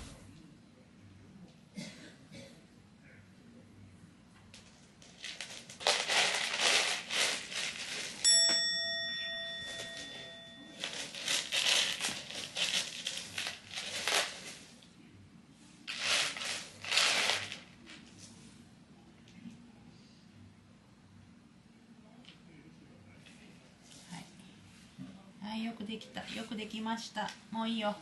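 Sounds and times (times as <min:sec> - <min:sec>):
cat scratching in litter: 0:05.0 - 0:08.2, 0:10.8 - 0:14.8, 0:15.8 - 0:18.2
bright ring: 0:08.2 - 0:12.0.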